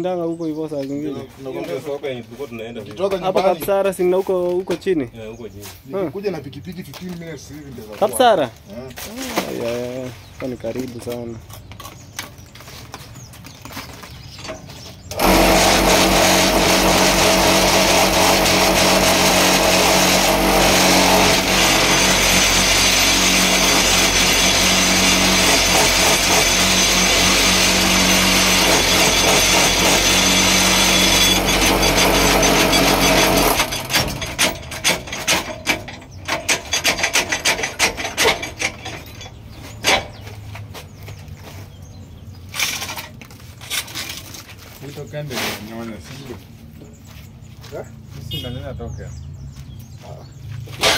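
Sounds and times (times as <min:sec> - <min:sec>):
vibrator motor hum and rattle: 0:15.1 - 0:35.7
metal knocks and clatters: 0:31.1 - 0:40.6.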